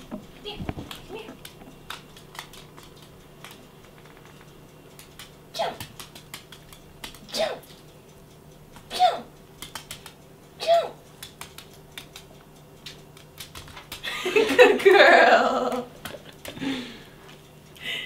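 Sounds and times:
dog claws clicking on hardwood: 0.7s - 3.6s.

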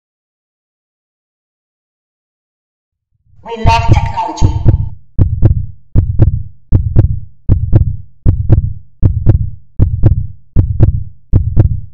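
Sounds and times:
heartbeat thumps: 3.6s - 11.9s.

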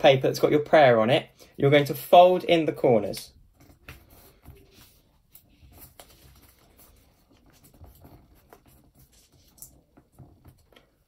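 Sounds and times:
paper rustling while folded: 3.5s - 11.0s.

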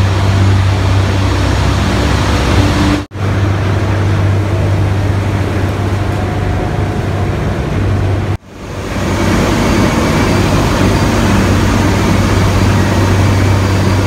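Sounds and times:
industrial machinery din: 0.0s - 14.0s
low hum: 0.0s - 14.0s.

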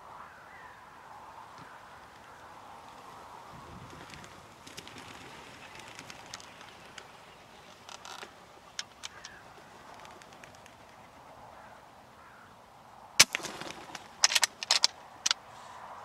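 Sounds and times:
rifle bolt clicks: 14.2s - 15.4s.

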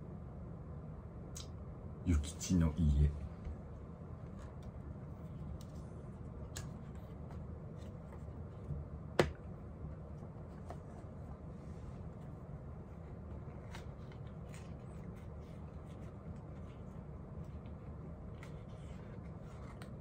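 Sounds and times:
low hum: 0.0s - 20.0s.

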